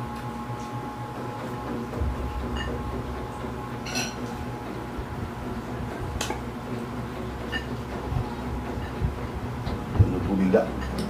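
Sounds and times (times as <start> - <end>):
steady low hum: 0.0 - 11.0
dishes clinking: 3.8 - 4.4, 7.5 - 7.8.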